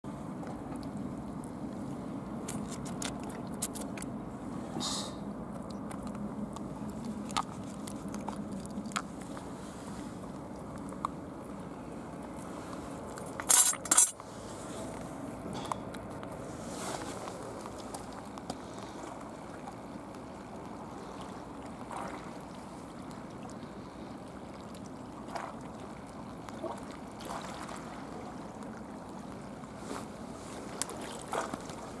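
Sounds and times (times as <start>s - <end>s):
wind: 0.0s - 32.0s
sea water washing: 0.1s - 32.0s
small splashes: 17.7s - 29.5s, 30.4s - 32.0s.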